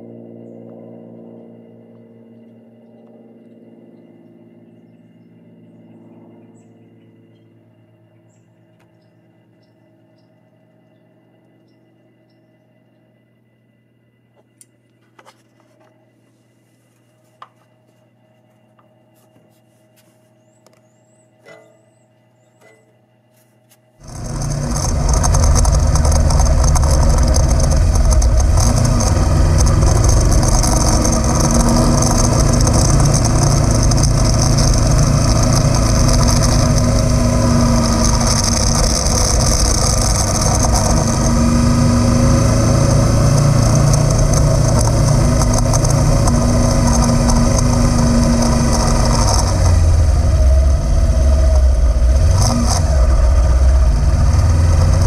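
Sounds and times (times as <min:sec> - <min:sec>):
motorcycle engine running: 0:24.0 - 0:55.0
wind and road noise: 0:24.0 - 0:55.0.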